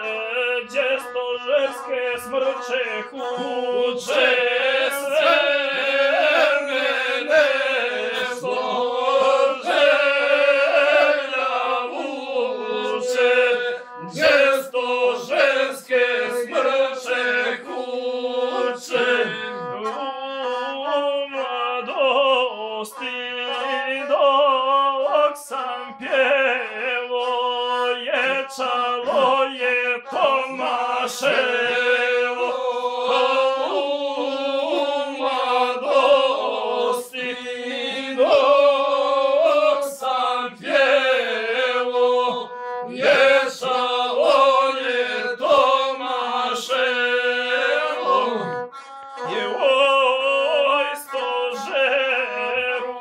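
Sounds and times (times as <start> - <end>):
man chanting epic song: 0.0 - 17.9
one-string bowed fiddle: 0.0 - 53.0.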